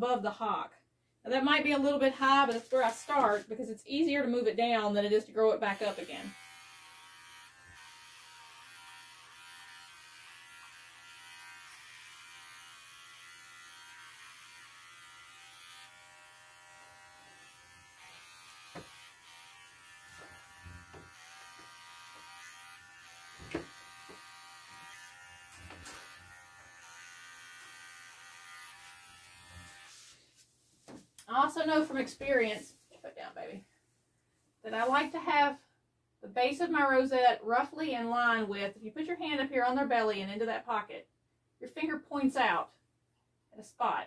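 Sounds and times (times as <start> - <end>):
electric clipper buzzing: 5.7 - 30.1.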